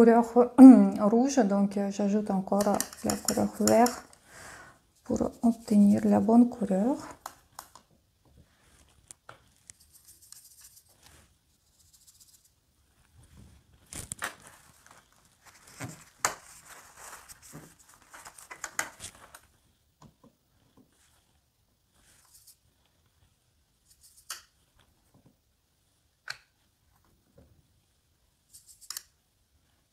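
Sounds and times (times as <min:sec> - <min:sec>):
brush strokes mixing paint: 0:02.2 - 0:07.6, 0:08.2 - 0:13.9, 0:14.5 - 0:19.8, 0:20.4 - 0:25.1.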